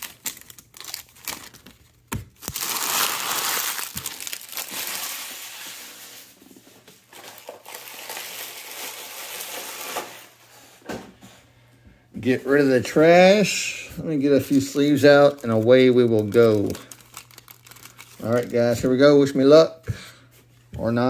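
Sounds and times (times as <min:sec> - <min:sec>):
wrappers crumpled by hand: 0:00.0 - 0:06.3, 0:07.1 - 0:10.3, 0:14.3 - 0:19.0.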